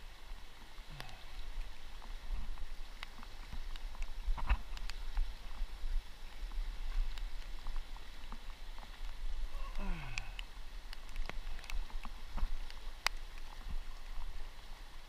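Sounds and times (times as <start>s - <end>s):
river water running: 0.0s - 15.0s
light ticks and taps: 0.9s - 5.6s, 6.3s - 9.2s, 10.1s - 14.4s.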